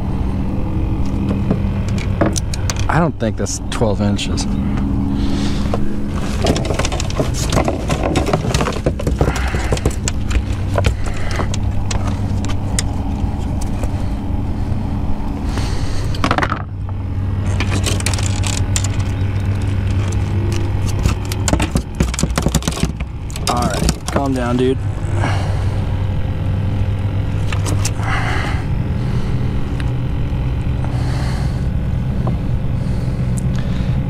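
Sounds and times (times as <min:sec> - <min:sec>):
low hum: 0:00.0 - 0:34.0
fish flopping on boat deck: 0:05.4 - 0:12.7.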